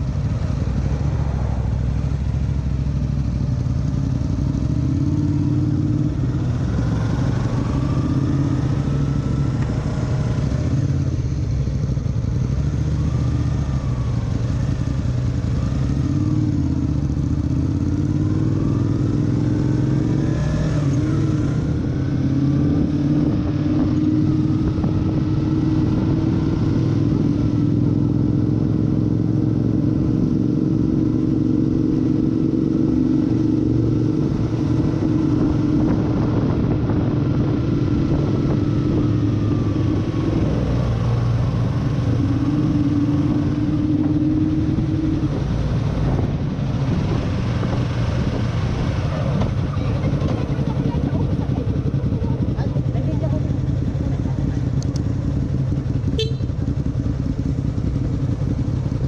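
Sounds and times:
motorcycle engine accelerating: 0.0 - 59.0
wind noise: 21.1 - 27.5, 33.8 - 52.1.

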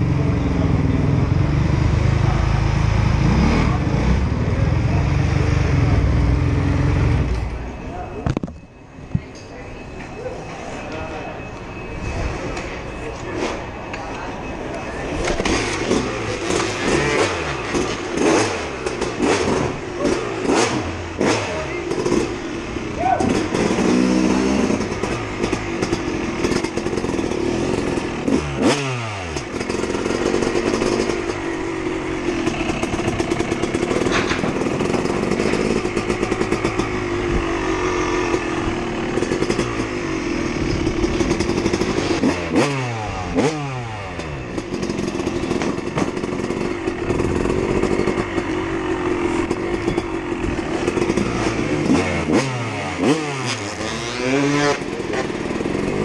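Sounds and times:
dirt bike engine revving: 15.2 - 56.0.

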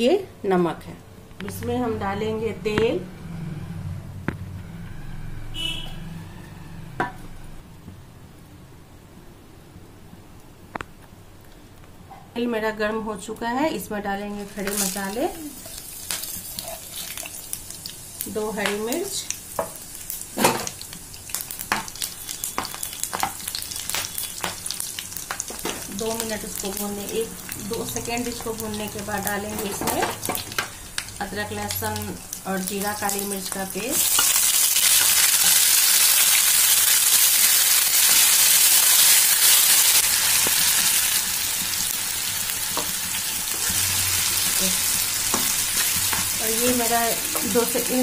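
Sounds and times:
spices sizzling and popping in oil: 14.2 - 48.0.

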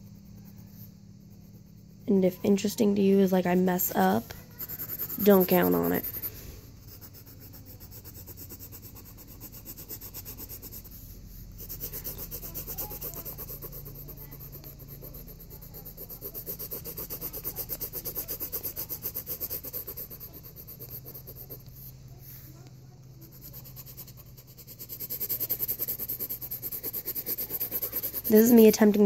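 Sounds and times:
pencil shading on paper: 0.0 - 29.0.

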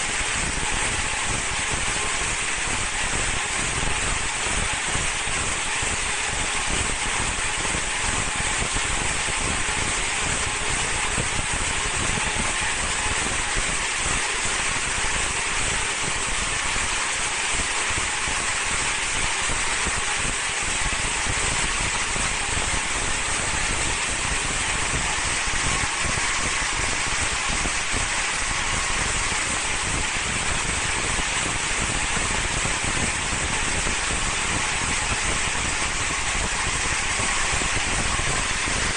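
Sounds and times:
slitting machine hissing and whirring: 0.0 - 38.9.

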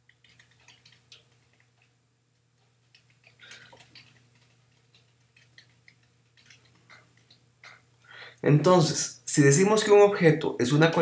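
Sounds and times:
keyboard typing clicks: 0.0 - 1.9.

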